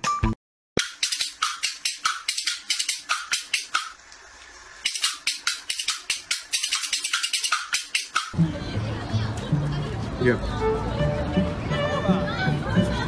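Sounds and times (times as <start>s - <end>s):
rapid shaker percussion: 0.8s - 4.0s, 4.8s - 8.4s.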